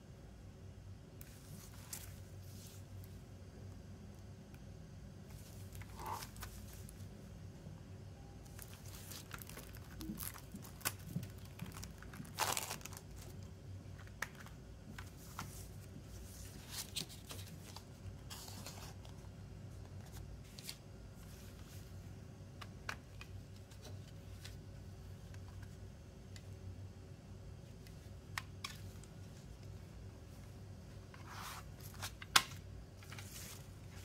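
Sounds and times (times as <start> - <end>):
plastic wrap crinkling and tearing: 8.5 - 13.5.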